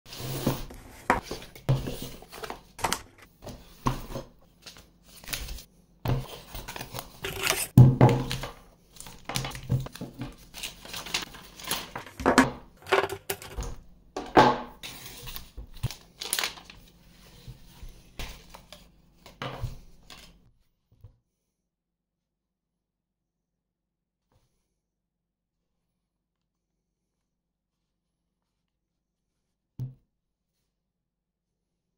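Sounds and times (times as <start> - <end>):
packaging crinkling and rustling: 6.3 - 13.7, 14.9 - 16.9
objects knocking on a table: 12.0 - 14.8.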